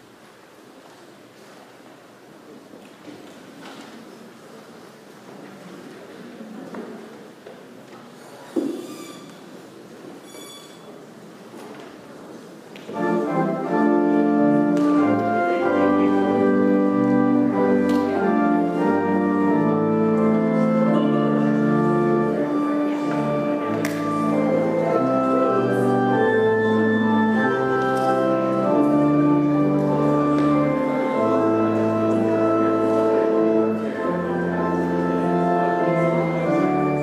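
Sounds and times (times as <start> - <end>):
murmur of room: 0.0 - 37.0
church organ playing chords: 12.9 - 37.0.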